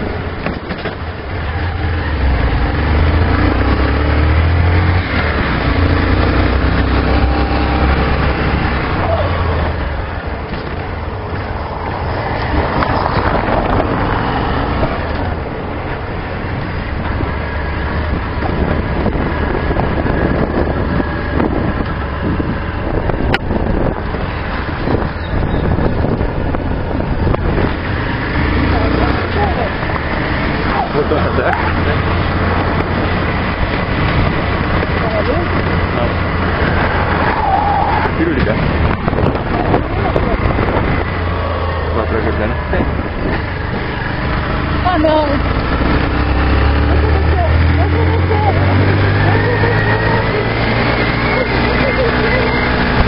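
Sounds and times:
tyres rumbling on cobblestones: 0:00.0 - 0:53.0
motorcycle engine running: 0:38.2 - 0:53.0.

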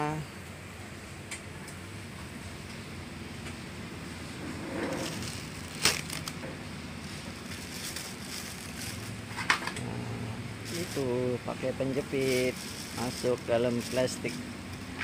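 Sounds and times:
low steady hum: 0:00.0 - 0:15.0
plastic bag crinkling: 0:04.9 - 0:09.5, 0:10.5 - 0:15.0.

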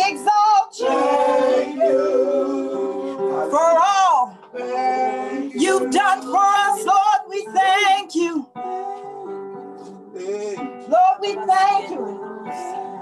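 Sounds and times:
woman singing gospel: 0:00.0 - 0:02.0, 0:03.3 - 0:04.4, 0:05.4 - 0:08.6, 0:10.8 - 0:13.0
guitar accompaniment: 0:00.0 - 0:13.0.

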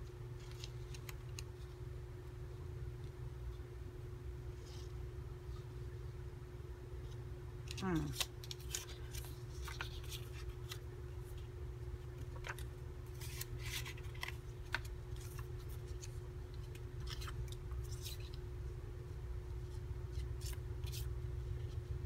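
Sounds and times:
steady low hum: 0:00.0 - 0:22.0
paper cards rustling: 0:00.1 - 0:01.9, 0:07.0 - 0:18.6, 0:19.6 - 0:22.0.

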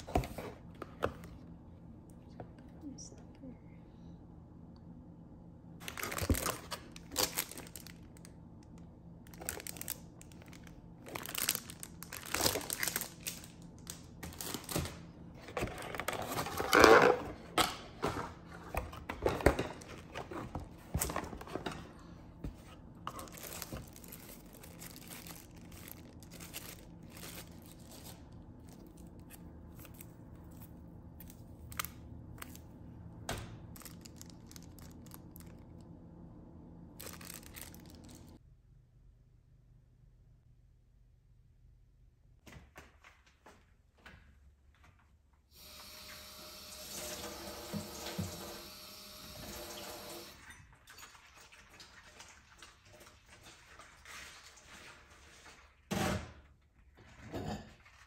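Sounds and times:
plastic packaging crinkling: 0:05.8 - 0:17.2, 0:23.0 - 0:32.8, 0:33.6 - 0:35.9, 0:36.9 - 0:38.4
handling noises: 0:09.3 - 0:35.7.

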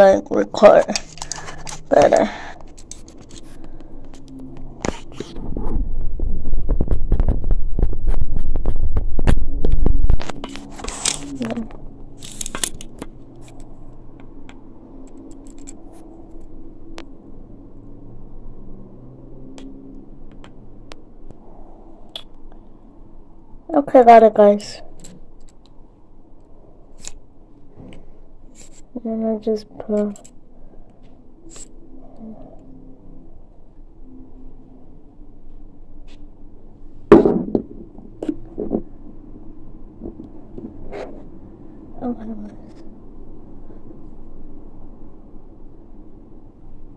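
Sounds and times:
steady low hum: 0:00.0 - 0:46.9.

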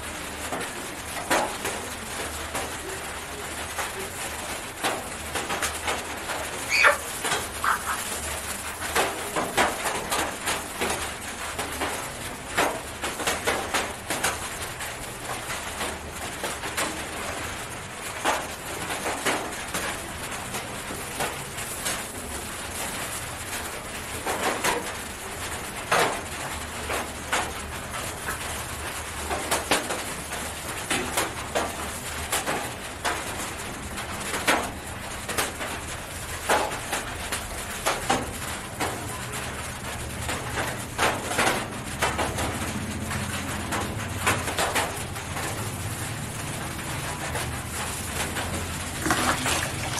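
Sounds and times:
plastic gloves and cloth rustling: 0:05.0 - 0:18.6, 0:19.7 - 0:26.3, 0:43.8 - 0:49.9
chicken calling softly: 0:06.6 - 0:08.2.

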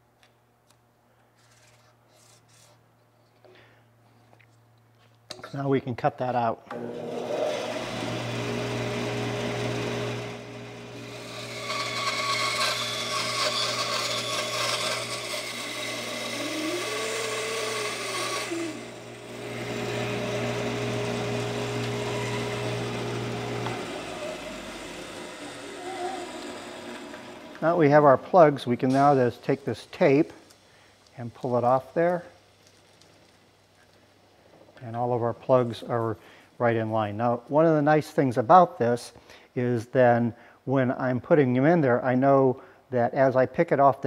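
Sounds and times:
bandsaw cutting wood: 0:06.7 - 0:30.6
bandsaw motor winding down: 0:06.7 - 0:30.6.

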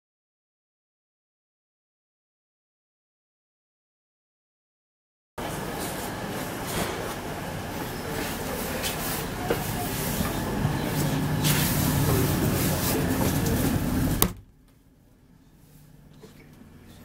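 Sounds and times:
train carriage running rumble: 0:05.4 - 0:14.3.

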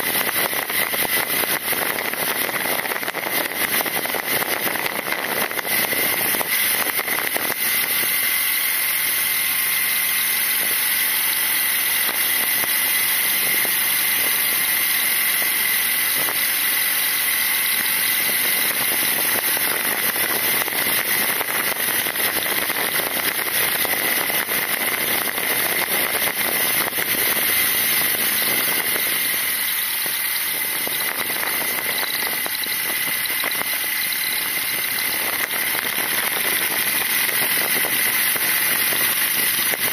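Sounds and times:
high-pitched whine: 0:00.0 - 0:39.9
motorcycle engine running: 0:00.0 - 0:39.9
wind and tyre noise: 0:00.0 - 0:39.9.

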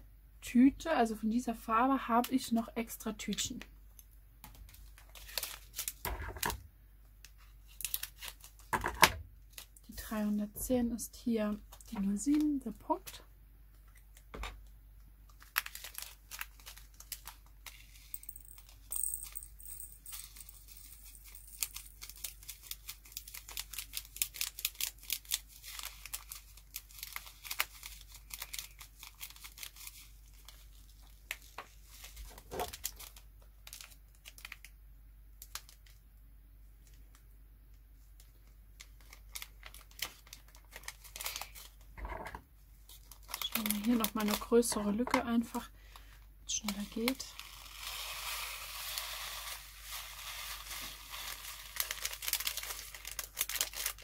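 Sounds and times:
plastic bag crinkling: 0:04.7 - 0:06.0, 0:15.2 - 0:34.7, 0:38.3 - 0:41.9, 0:42.8 - 0:45.6, 0:46.5 - 0:54.0
small beads poured into pot: 0:15.6 - 0:27.0, 0:46.6 - 0:54.0.

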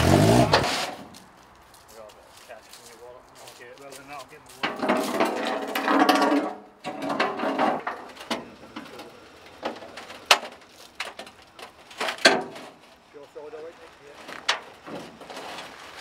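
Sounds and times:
sharp knocks and clunks: 0:04.6 - 0:09.0, 0:09.6 - 0:12.8.

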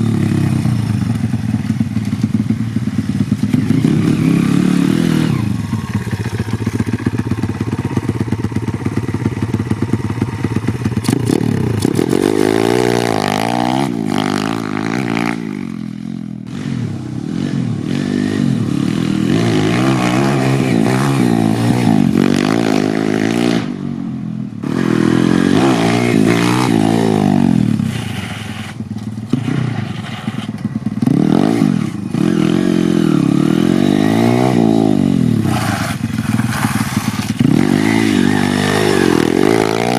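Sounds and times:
pit bike engine revving: 0:00.0 - 0:23.8, 0:24.6 - 0:39.9.

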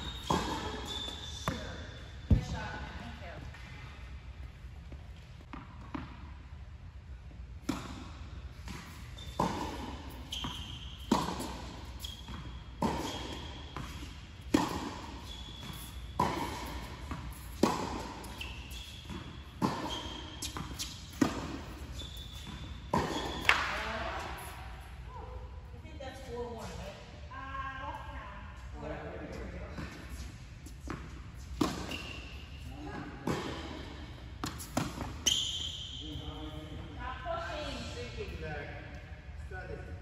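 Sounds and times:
shoes squeaking on court: 0:00.0 - 0:03.8, 0:07.6 - 0:24.8, 0:29.4 - 0:37.0
tennis ball bounces: 0:07.6 - 0:24.3, 0:30.9 - 0:32.2, 0:33.2 - 0:35.4.

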